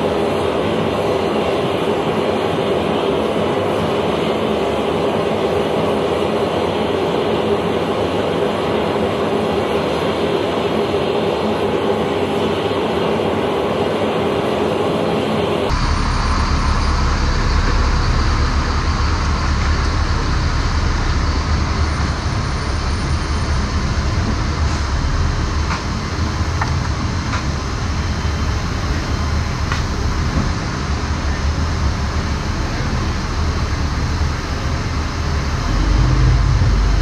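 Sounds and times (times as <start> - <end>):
loud engine rumble: 15.6 - 37.0.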